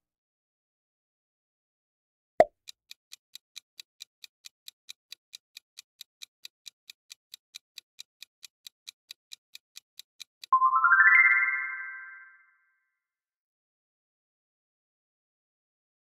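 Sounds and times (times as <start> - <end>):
countdown timer ticking: 2.4 - 12.4.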